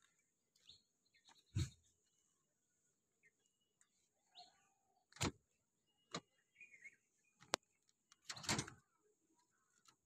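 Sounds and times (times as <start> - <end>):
faint bird chirps: 3.1 - 9.8.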